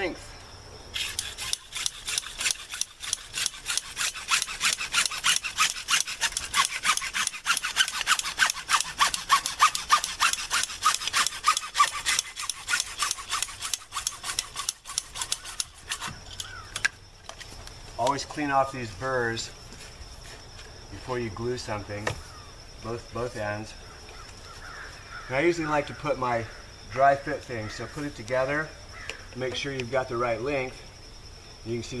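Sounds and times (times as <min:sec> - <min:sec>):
hand saw cutting plastic pipe: 0:01.0 - 0:16.2.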